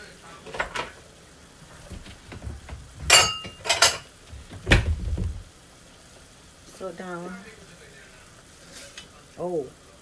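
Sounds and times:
kitchenware clinking and knocking: 0:00.5 - 0:01.0, 0:01.9 - 0:05.4.

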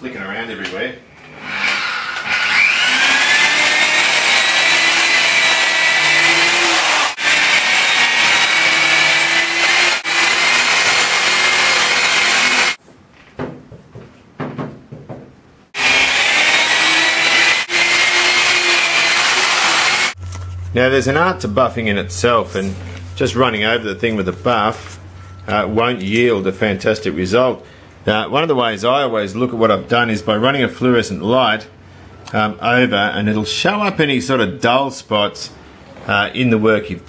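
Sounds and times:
electric polisher whining: 0:02.1 - 0:12.8, 0:15.8 - 0:20.2.

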